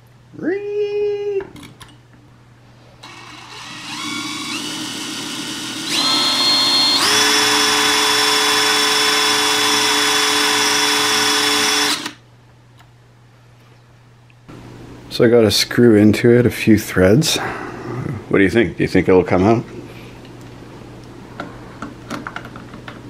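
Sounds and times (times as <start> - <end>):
cordless drill motor whining: 3.0 - 12.2.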